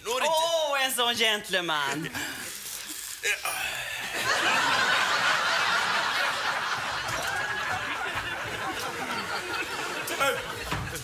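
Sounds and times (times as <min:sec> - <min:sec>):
audience laughing: 0:04.2 - 0:11.0.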